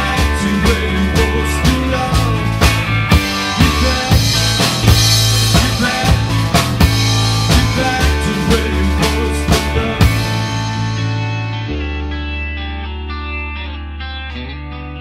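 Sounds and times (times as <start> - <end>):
drum kit beat: 0.0 - 11.8
held bass notes: 0.0 - 15.0.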